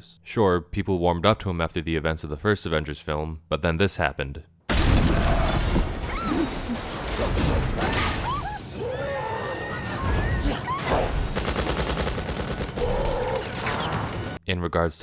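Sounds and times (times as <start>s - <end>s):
crowd screaming: 8.2s - 11.1s.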